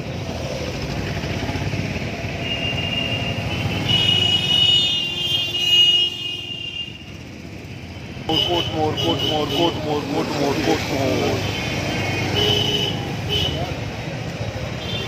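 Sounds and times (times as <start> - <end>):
motorcycle engine running: 0.0 - 5.1
city street traffic: 0.0 - 15.0.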